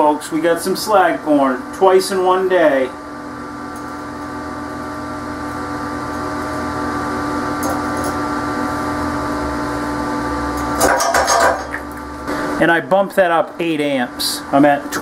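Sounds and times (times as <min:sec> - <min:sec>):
steady machine hum: 0:00.0 - 0:15.0.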